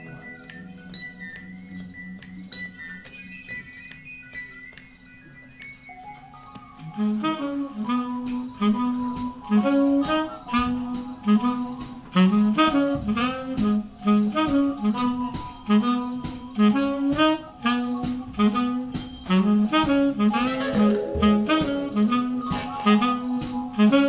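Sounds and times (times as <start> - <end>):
horn section punchy phrases: 7.0 - 24.0
jazz big band playing: 7.0 - 24.0.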